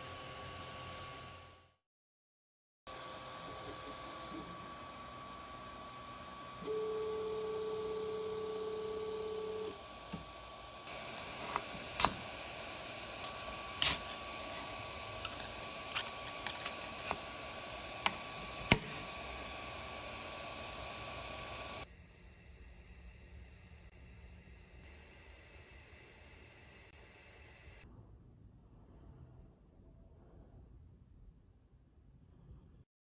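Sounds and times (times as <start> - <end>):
printer steady pitched tone: 2.9 - 21.9
faint steady whine: 2.9 - 31.5.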